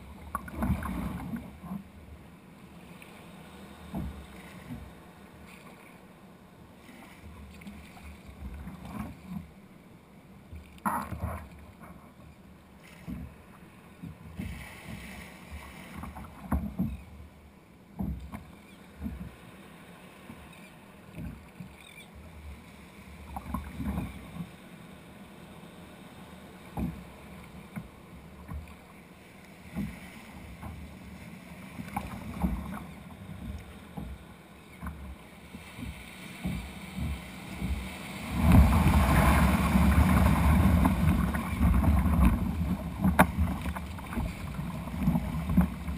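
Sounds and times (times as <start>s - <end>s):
water slapping kayak hull: 0.0s - 45.9s.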